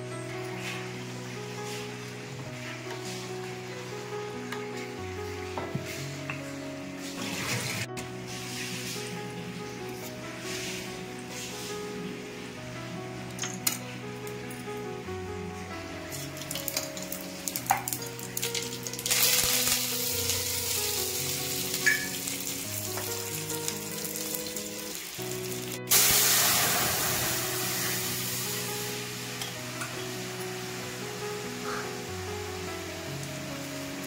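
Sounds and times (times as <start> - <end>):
background music: 0.0 - 34.0
loud sizzle of liquid in hot pan: 7.0 - 9.4, 16.1 - 34.0
mustard seeds crackling in hot oil: 16.1 - 32.0
spices sizzling in oil: 16.1 - 34.0.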